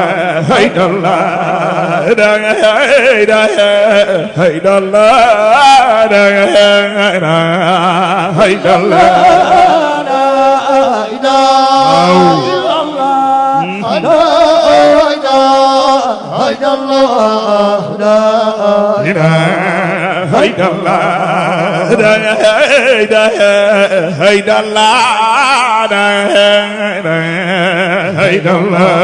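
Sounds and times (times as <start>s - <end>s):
lead male voice chanting: 5.8s - 22.6s
men holding long notes: 11.7s - 15.1s.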